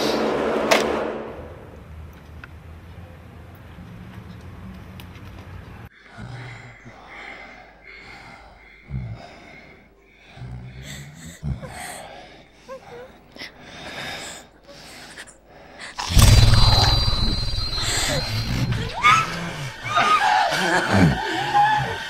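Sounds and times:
sudden loud sound: 0:00.0 - 0:01.8, 0:16.0 - 0:19.4.

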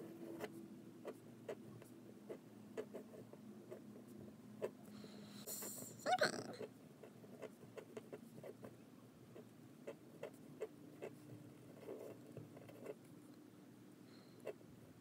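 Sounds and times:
fountain pen scratching paper: 0:00.0 - 0:04.8, 0:07.0 - 0:13.1.

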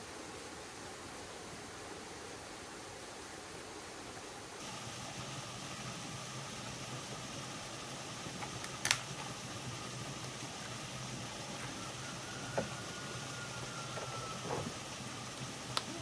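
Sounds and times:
steady outdoor hiss: 0:00.0 - 0:16.0.

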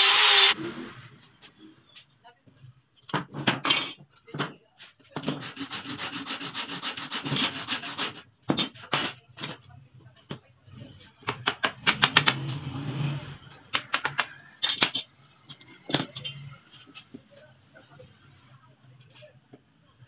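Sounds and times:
metal tools tapping and clinking: 0:03.0 - 0:04.1, 0:14.6 - 0:16.5
hand tool rasping wood: 0:05.4 - 0:08.2.

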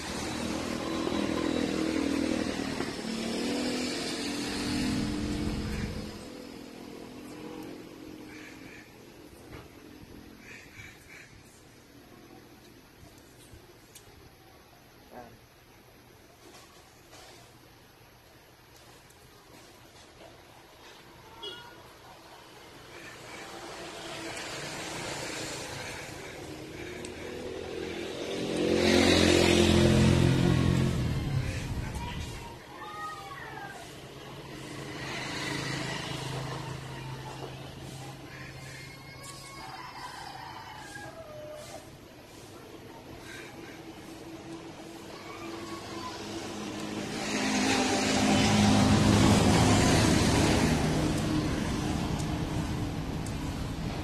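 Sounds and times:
vehicle engine passing by: 0:00.0 - 0:10.0, 0:22.5 - 0:32.6, 0:33.7 - 0:54.0.

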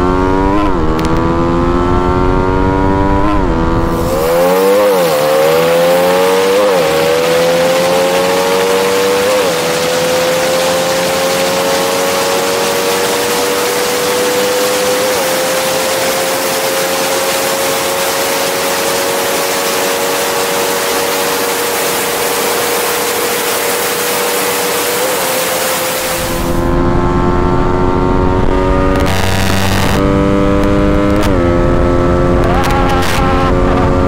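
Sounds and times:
motorcycle engine at high revs: 0:00.0 - 0:34.0
wind rush over microphone: 0:26.1 - 0:34.0.

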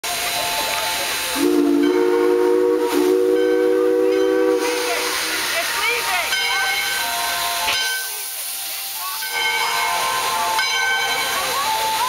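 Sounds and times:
steam hissing: 0:00.0 - 0:12.0
steam locomotive whistle: 0:01.3 - 0:05.7.

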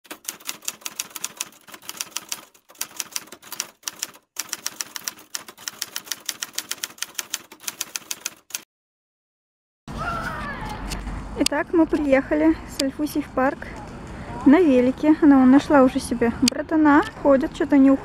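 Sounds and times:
typewriter key clicks: 0:00.0 - 0:08.6.

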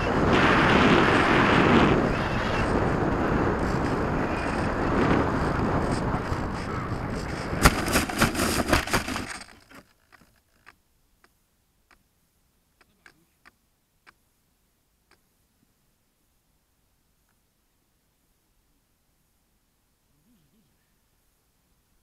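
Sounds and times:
rushing air: 0:00.0 - 0:09.2
knocks and scraping through snow: 0:02.0 - 0:10.4
faint ticks: 0:09.8 - 0:12.1, 0:12.8 - 0:14.2, 0:15.0 - 0:15.3, 0:17.2 - 0:17.4.

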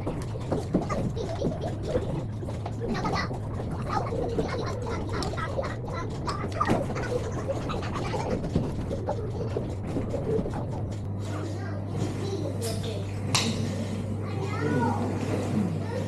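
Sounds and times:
steady low hum: 0:00.0 - 0:16.0
children's voices and chatter: 0:14.1 - 0:16.0.

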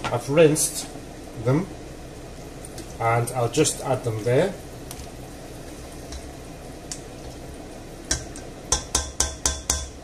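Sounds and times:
spoon tapping pot rim: 0:08.1 - 0:10.0.

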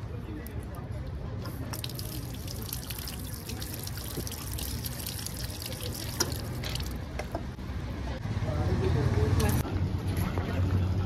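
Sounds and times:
water splashing over hands: 0:01.7 - 0:07.0
water running from a tap: 0:01.8 - 0:07.0.

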